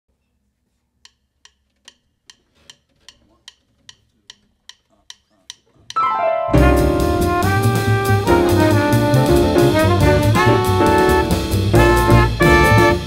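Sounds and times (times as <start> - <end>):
drumsticks clicking together: 1.0 - 6.0.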